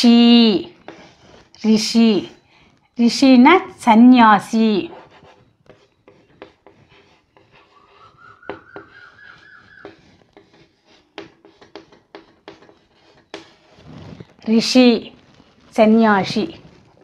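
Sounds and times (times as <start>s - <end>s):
chalk writing on a blackboard: 0.2s - 1.6s, 4.8s - 14.4s.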